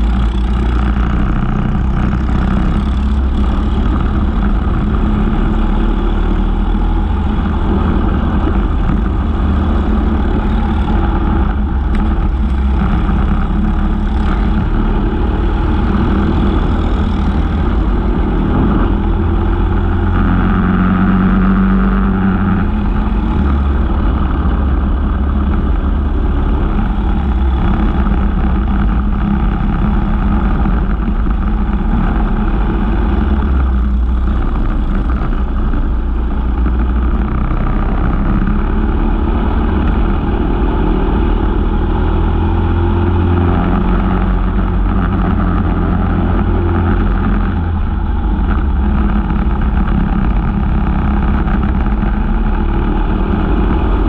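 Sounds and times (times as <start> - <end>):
kart engines running: 0.0 - 40.7.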